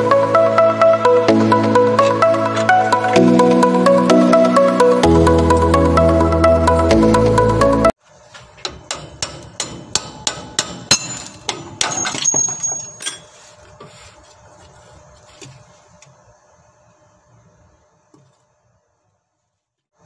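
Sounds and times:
metal-on-metal knocks: 8.6s - 13.3s
metal clinks and handling: 11.0s - 13.6s.

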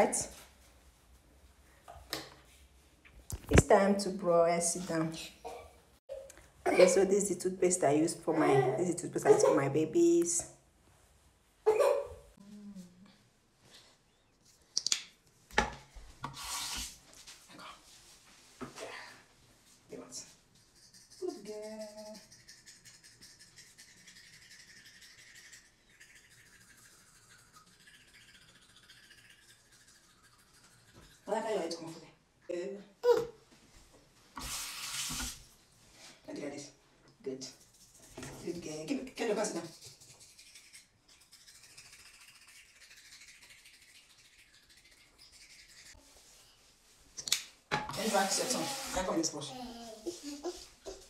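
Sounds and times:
toothbrush scrubbing teeth: 20.2s - 32.0s, 37.3s - 46.6s, 48.0s - 51.0s.

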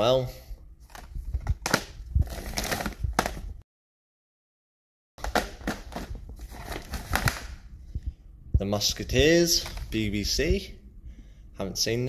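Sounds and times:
plastic cases clattering: 5.2s - 7.5s.

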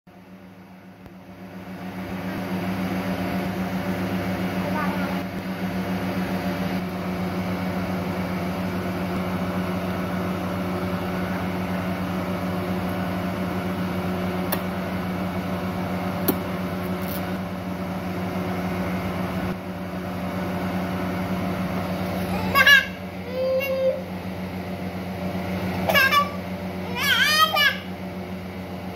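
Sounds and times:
mechanical buzzing hum: 0.2s - 28.9s.

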